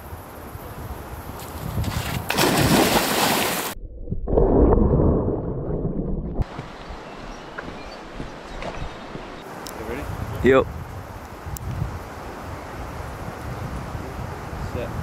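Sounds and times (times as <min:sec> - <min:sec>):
loud rushing splash: 0:02.3 - 0:03.8.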